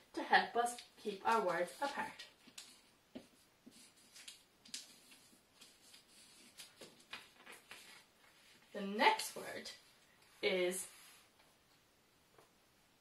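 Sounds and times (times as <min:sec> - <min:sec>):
marker scratching on paper: 0:00.7 - 0:07.0.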